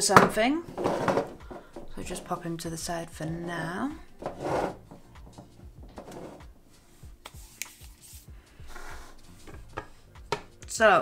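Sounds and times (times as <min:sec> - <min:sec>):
metal tin scraping on desk: 0:00.7 - 0:02.4, 0:03.4 - 0:06.5, 0:08.7 - 0:09.9.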